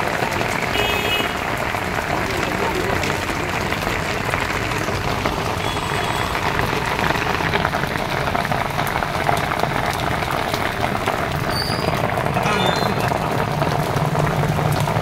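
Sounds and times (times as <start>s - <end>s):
rain pattering: 0.0s - 15.0s.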